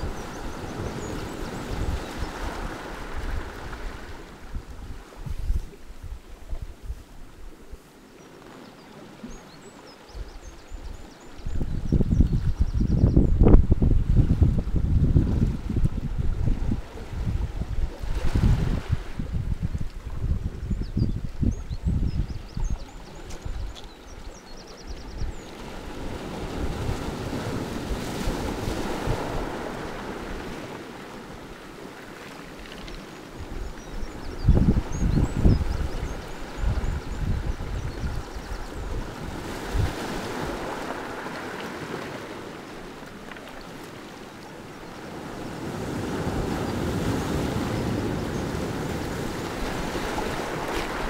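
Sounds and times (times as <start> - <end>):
waves breaking on rocks: 0.0 - 5.2, 25.6 - 37.8, 38.8 - 51.0
wind rumble on microphone: 0.0 - 7.9, 9.2 - 42.4, 44.9 - 51.0.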